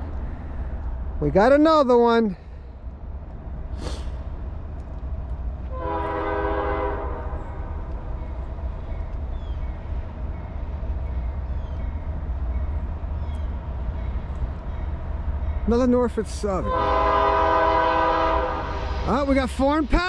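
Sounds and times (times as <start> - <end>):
locomotive air horn blast: 5.7 - 7.8, 16.6 - 19.2.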